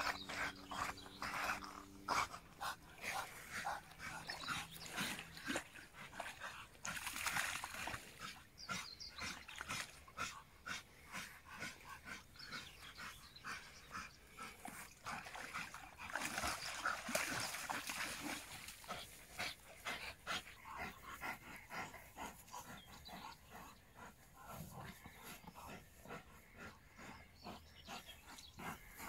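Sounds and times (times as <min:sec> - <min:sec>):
dogs splashing in water: 0:00.0 - 0:10.3, 0:14.4 - 0:20.5.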